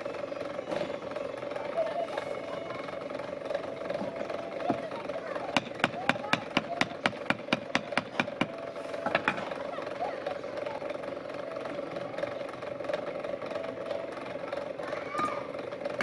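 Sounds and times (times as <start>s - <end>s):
engine-like hum: 0.0s - 16.0s
wooden rammer knocking sand: 5.5s - 8.6s.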